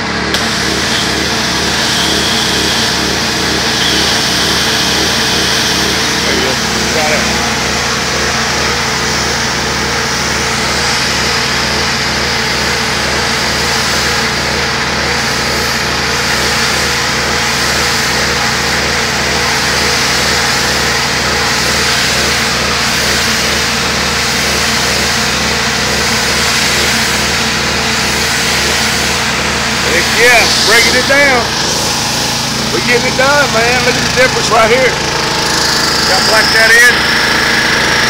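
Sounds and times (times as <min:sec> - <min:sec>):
pressure washer engine drone: 0:00.0 - 0:38.0
water jet hissing on wall: 0:00.3 - 0:38.0.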